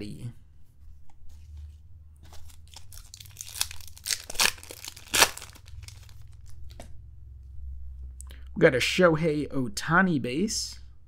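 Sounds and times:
wrapper rustling: 0:02.2 - 0:06.7
foil wrapper tearing and crinkling: 0:02.4 - 0:06.5.

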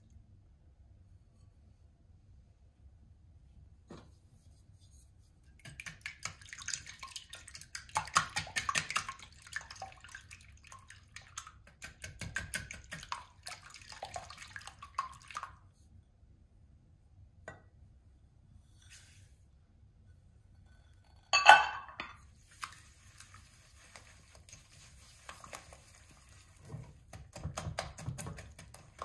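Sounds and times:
whisk beating eggs in glass bowl: 0:05.6 - 0:15.2, 0:23.2 - 0:29.0.

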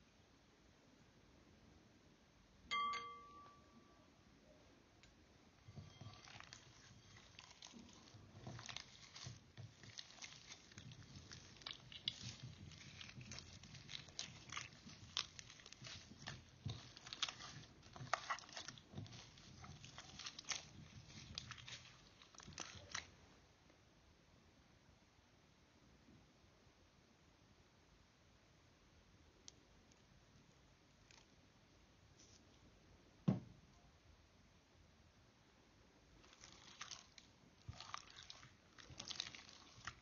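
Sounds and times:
slime squelching and crackling: 0:05.6 - 0:23.2, 0:36.1 - 0:40.0.

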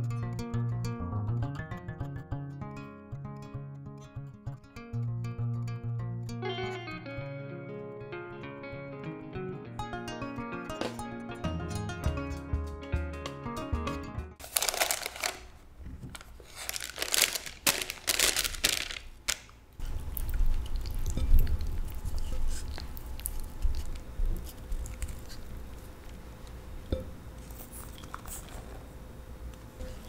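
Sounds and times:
acoustic guitar music: 0:00.0 - 0:14.4
wrapper crinkling: 0:14.4 - 0:25.7.

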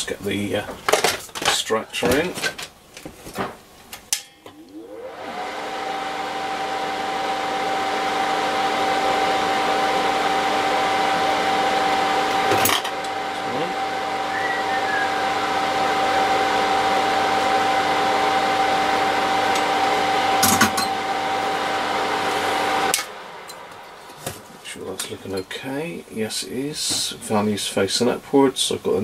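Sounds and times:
extractor fan whirring: 0:04.5 - 0:27.0.

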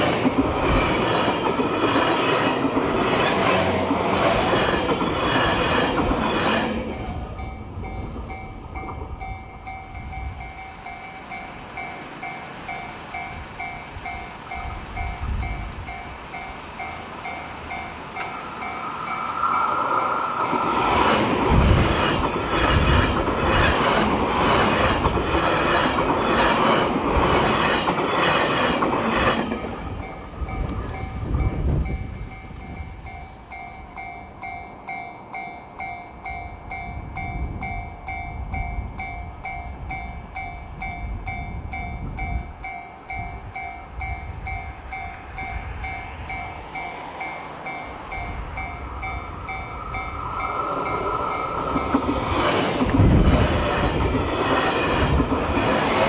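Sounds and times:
crossing warning bell ringing: 0:00.0 - 0:28.3, 0:29.3 - 0:56.0
train wheels clacking: 0:00.0 - 0:36.0, 0:37.6 - 0:56.0
train rumble: 0:00.0 - 0:56.0.

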